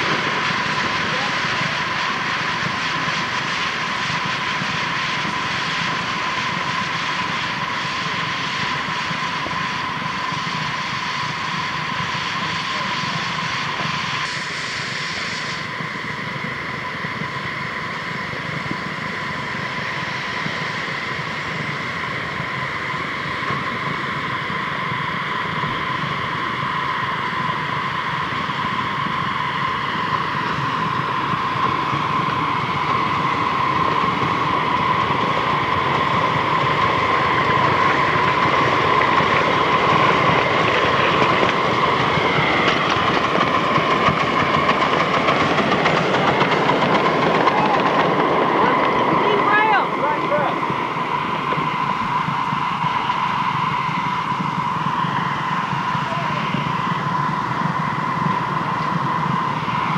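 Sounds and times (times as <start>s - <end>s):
miniature steam locomotive running: 0.0s - 59.9s
steam hissing: 0.0s - 59.9s
steady high tone: 27.5s - 59.9s.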